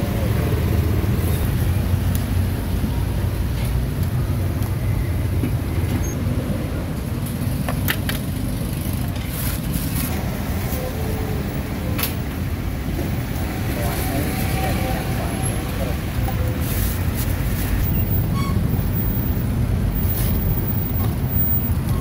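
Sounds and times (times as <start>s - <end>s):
low rumble of road traffic: 0.0s - 22.0s.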